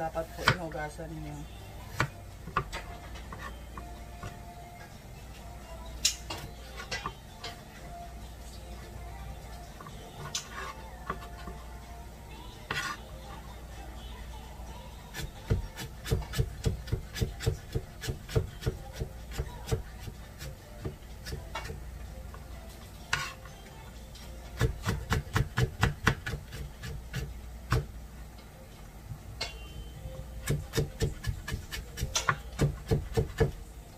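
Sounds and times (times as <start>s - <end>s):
knife chopping on plastic board: 24.6s - 27.9s, 30.4s - 33.6s.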